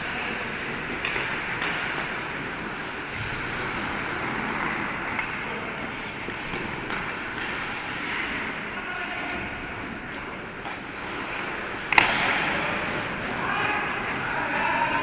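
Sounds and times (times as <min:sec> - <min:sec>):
hockey sticks and puck clacking: 0:00.0 - 0:15.0
skate blades scraping ice: 0:00.0 - 0:15.0.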